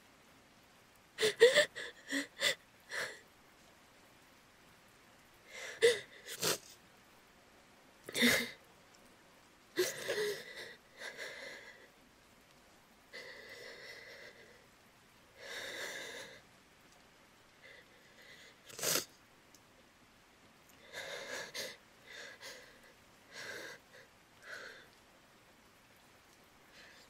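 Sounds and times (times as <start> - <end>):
woman sobbing and sniffling: 1.2 - 3.2, 5.5 - 6.7, 9.8 - 11.9.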